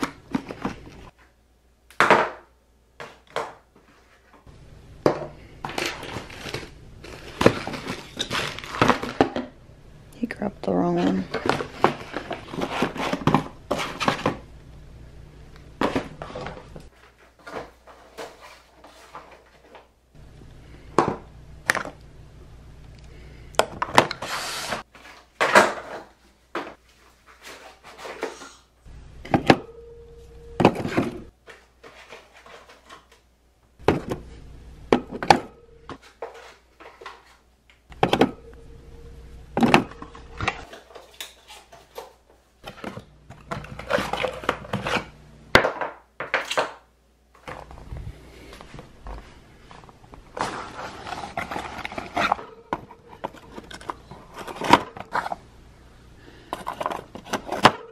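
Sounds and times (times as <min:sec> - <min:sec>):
cardboard rustling: 0:05.6 - 0:09.4, 0:11.2 - 0:14.4, 0:30.6 - 0:33.2, 0:48.6 - 0:55.4.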